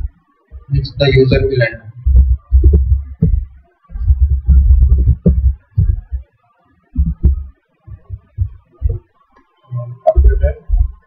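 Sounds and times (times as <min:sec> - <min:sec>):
keyboard typing thumps: 0:02.0 - 0:06.3, 0:06.9 - 0:09.1, 0:10.1 - 0:11.0.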